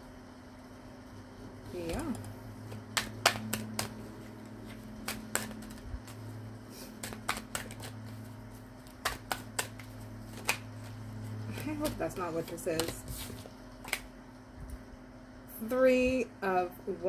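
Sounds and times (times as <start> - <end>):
steady low hum: 0.0 - 17.0
cards being shuffled: 1.7 - 14.8.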